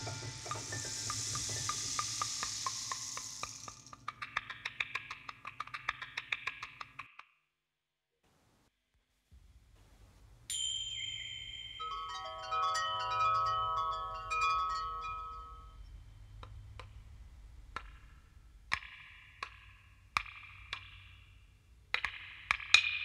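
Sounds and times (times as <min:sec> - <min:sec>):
chime-like ringing tones: 0:10.5 - 0:16.2
low hum: 0:11.2 - 0:20.0.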